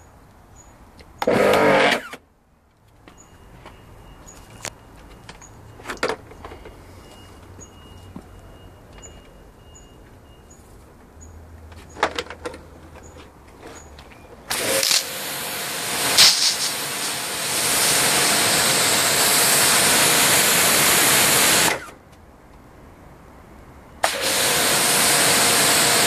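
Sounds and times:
pressure washer spray hissing: 14.5 - 21.7, 24.0 - 26.0.

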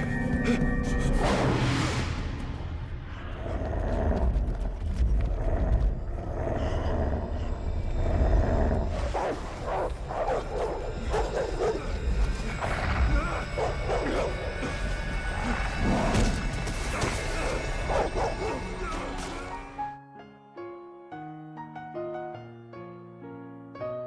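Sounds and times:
deep low rumble: 0.0 - 9.1
creature snarling and growling: 3.2 - 19.5.

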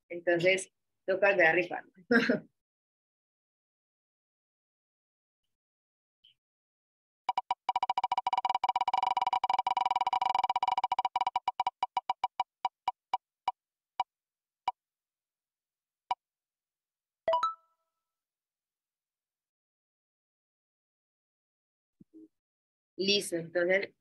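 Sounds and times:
electronic wheel ticking: 7.3 - 13.2.

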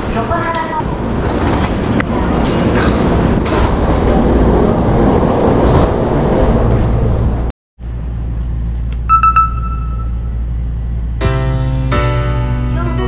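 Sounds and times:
electric train rumbling: 0.0 - 13.0.

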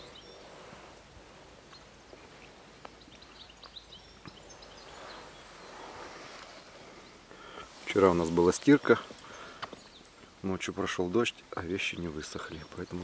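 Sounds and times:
river ambience: 0.0 - 13.0
faint clicks: 9.2 - 10.3.

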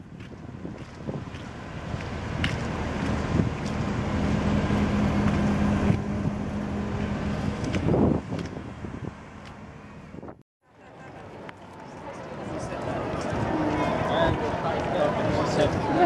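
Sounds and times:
wind noise on microphone: 0.0 - 10.4
motorboat engine running: 0.1 - 10.0.

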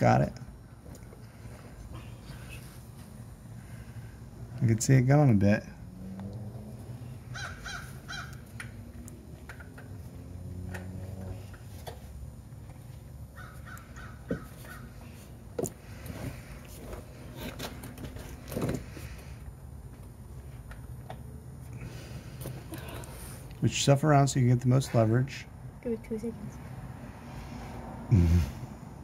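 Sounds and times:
harsh bird calls: 7.2 - 8.4.

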